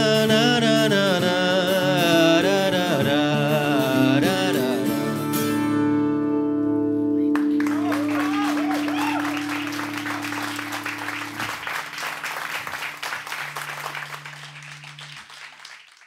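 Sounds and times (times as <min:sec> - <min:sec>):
acoustic guitar chord ringing: 0:00.0 - 0:15.1
audience applauding: 0:07.3 - 0:16.0.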